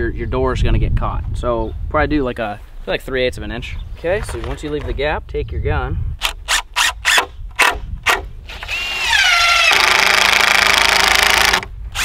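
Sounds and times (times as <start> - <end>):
impact driver motor whine: 8.1 - 12.0.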